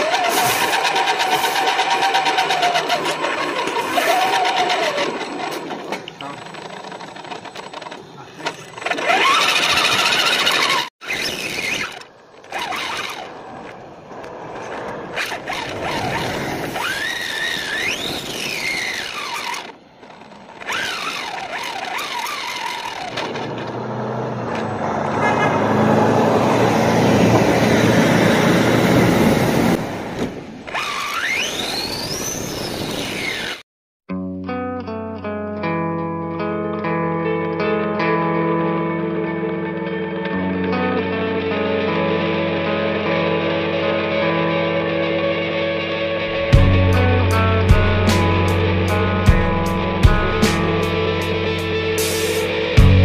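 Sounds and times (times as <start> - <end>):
electric motor whining: 0.0 - 13.4, 15.2 - 23.8
road and tyre noise: 0.0 - 33.6, 36.8 - 53.0.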